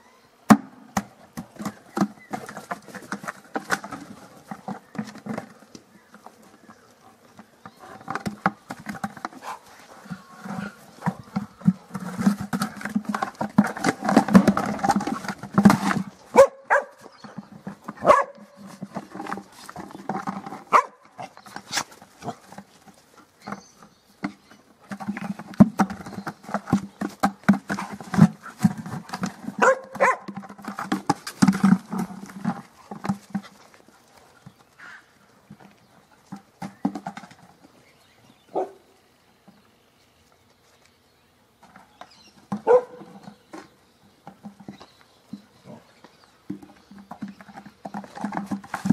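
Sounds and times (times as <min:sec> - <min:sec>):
flower pot scraping over dirt: 0:01.5 - 0:35.1.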